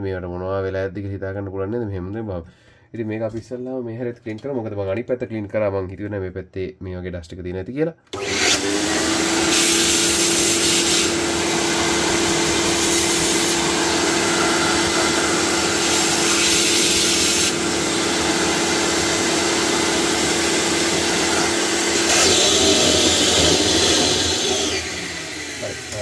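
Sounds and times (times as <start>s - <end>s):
electric dust blower motor hum: 8.2s - 26.0s.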